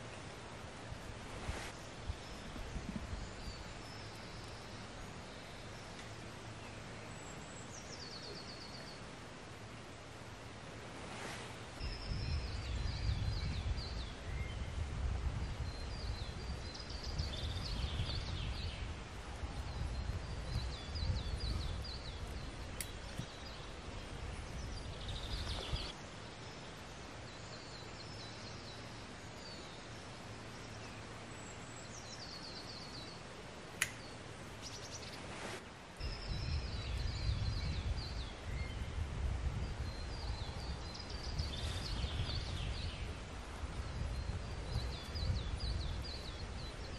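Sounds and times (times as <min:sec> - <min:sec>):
songbirds trilling: 0:11.7 - 0:46.9
sharp click: 0:33.8 - 0:34.1.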